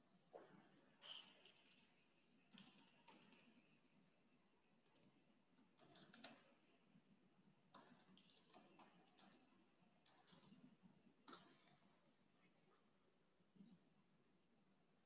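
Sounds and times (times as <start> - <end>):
computer keyboard typing: 1.1 - 3.8, 4.6 - 6.6, 7.7 - 10.7.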